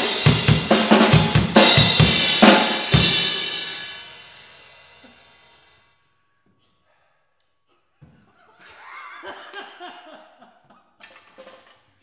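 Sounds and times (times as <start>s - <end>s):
man laughing: 8.0s - 11.0s.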